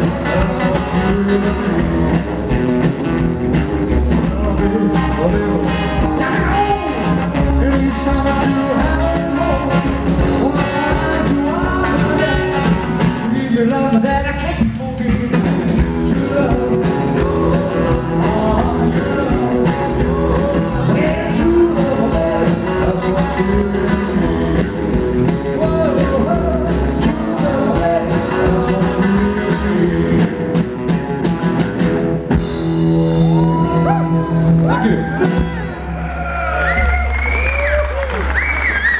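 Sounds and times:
man singing: 0:00.0 - 0:02.2, 0:03.9 - 0:30.7
rock and roll band playing: 0:00.0 - 0:38.9.

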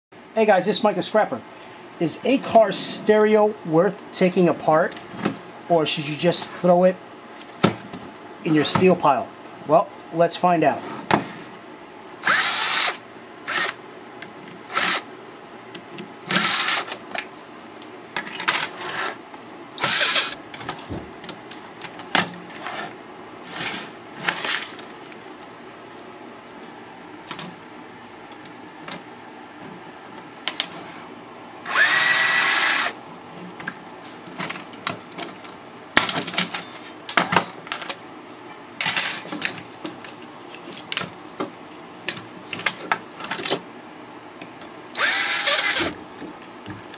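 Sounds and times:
cordless drill whirring: 0:12.2 - 0:13.8, 0:14.7 - 0:15.1, 0:16.2 - 0:17.0, 0:19.8 - 0:20.4, 0:31.6 - 0:33.0, 0:44.9 - 0:46.0.

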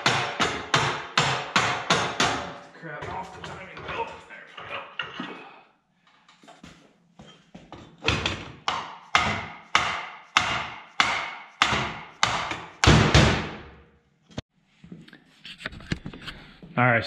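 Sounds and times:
mallet striking metal: 0:08.7 - 0:13.4.

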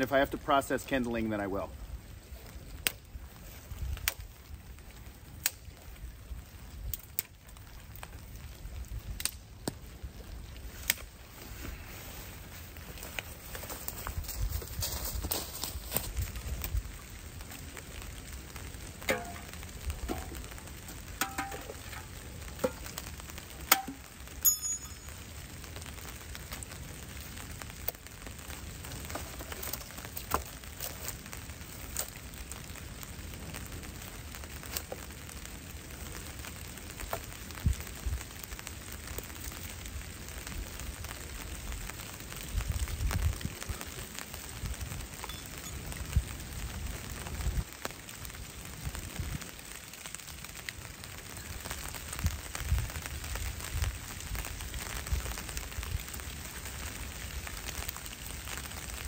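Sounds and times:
rain on dry leaves: 0:00.0 - 0:59.0
twigs snapping: 0:02.7 - 0:03.1, 0:03.9 - 0:04.3, 0:05.4 - 0:05.8, 0:09.1 - 0:09.8, 0:10.8 - 0:11.2, 0:28.8 - 0:32.3, 0:34.6 - 0:35.1.

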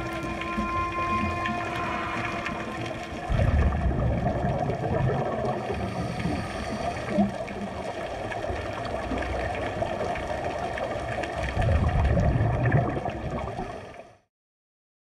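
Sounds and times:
low rumble: 0:00.0 - 0:08.7
underwater regulator bubbles gurgling: 0:00.0 - 0:14.1.

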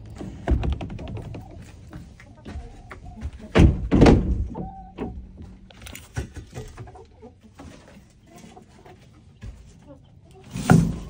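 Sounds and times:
heavy thuds: 0:03.2 - 0:05.6.

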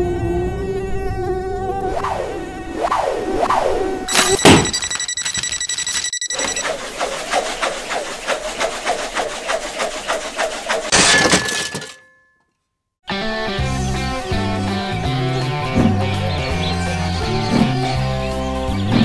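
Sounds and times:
high ringing tone: 0:04.1 - 0:06.9
loud smashing crash: 0:10.9 - 0:12.1.

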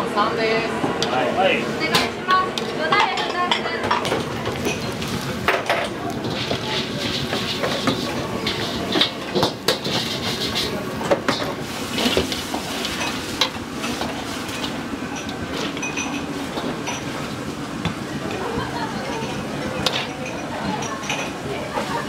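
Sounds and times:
food sizzling in a hot wok: 0:11.5 - 0:14.9.

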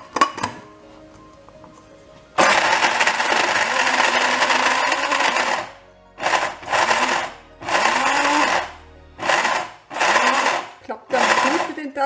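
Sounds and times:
electric grain mill whirring: 0:02.4 - 0:11.9.

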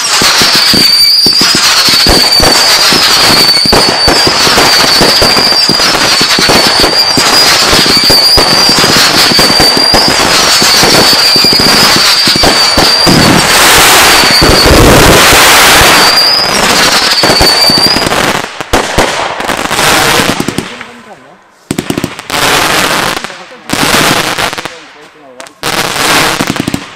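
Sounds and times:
fireworks crackling and popping: 0:00.0 - 0:26.9
high steady whistle: 0:00.6 - 0:02.5.

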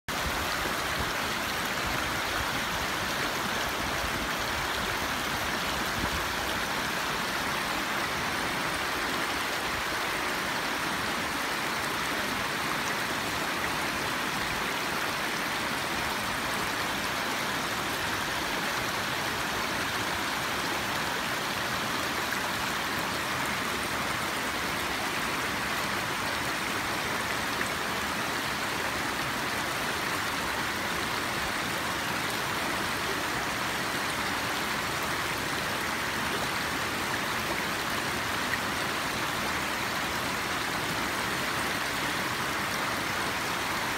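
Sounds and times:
creek rushing over rocks: 0:00.1 - 0:43.9.

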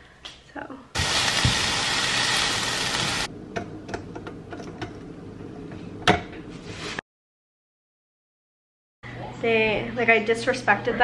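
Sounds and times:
onions sizzling in a skillet: 0:01.0 - 0:03.3.

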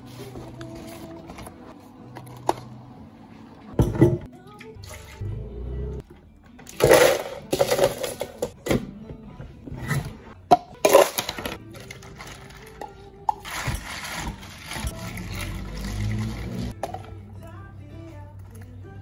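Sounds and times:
ice cubes clattering into blender jar: 0:06.7 - 0:08.5, 0:10.8 - 0:12.7.

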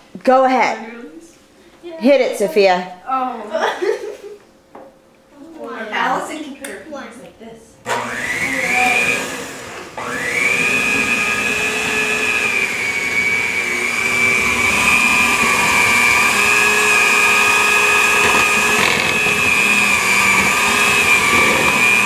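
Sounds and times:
electric hand mixer whining: 0:07.9 - 0:22.0.

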